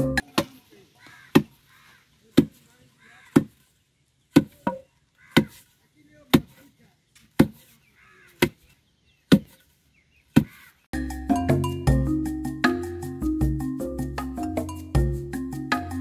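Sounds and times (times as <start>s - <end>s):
pestle thudding in wooden mortar: 1.3s - 1.6s, 3.3s - 3.6s, 4.3s - 5.6s, 7.3s - 7.7s, 9.3s - 9.6s.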